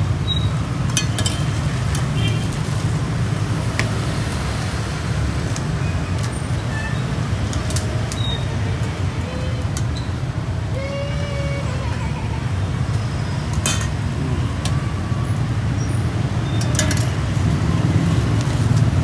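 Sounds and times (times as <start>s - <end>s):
street traffic rumble: 0.0s - 19.0s
metal tongs clinking on steel bowl: 16.6s - 17.2s.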